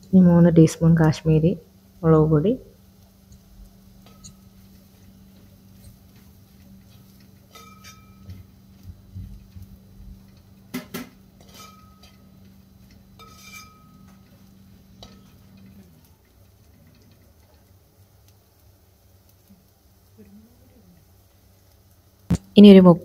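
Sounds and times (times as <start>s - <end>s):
spoon clinking with metallic ring: 4.0s - 4.5s
spoon scraping metal pot: 6.9s - 8.4s, 11.4s - 12.3s, 13.2s - 14.3s.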